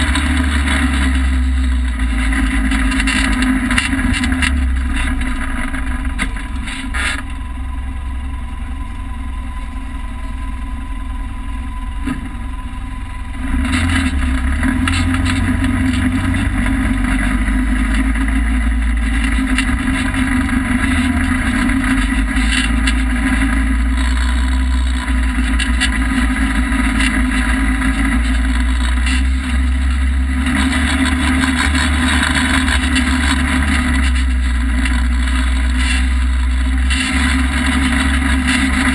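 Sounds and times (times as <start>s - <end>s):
vehicle engine drone: 0.0s - 38.9s.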